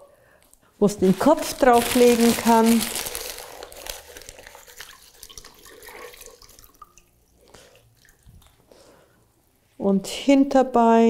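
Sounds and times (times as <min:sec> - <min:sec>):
hands squishing wet newspaper: 0:00.9 - 0:08.8
water splashing and dripping: 0:04.7 - 0:08.6.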